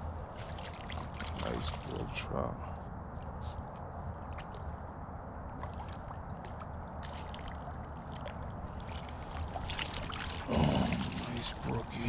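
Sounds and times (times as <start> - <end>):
water splashing: 0.3 - 2.2, 5.5 - 12.0
stream water rushing: 8.4 - 12.0.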